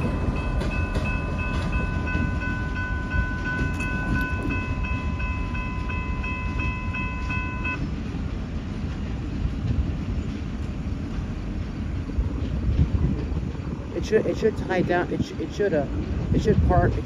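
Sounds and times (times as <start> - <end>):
crossing bell ringing: 0.0 - 7.9
freight train rumble: 0.0 - 17.0.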